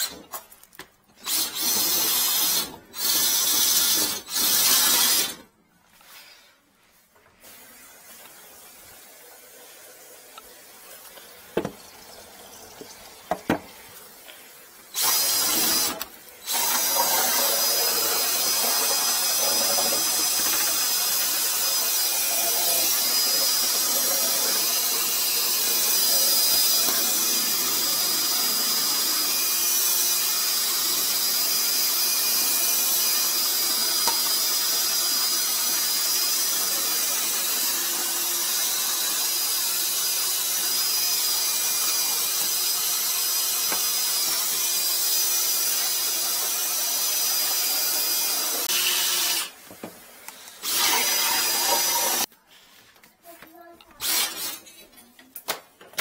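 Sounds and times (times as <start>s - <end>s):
cordless drill spinning drain cable: 1.2s - 5.4s, 14.9s - 49.6s, 50.3s - 52.3s, 54.0s - 54.6s.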